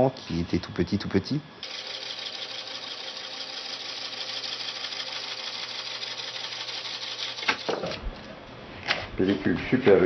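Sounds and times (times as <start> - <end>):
film rewinder rattling: 1.6 - 8.0.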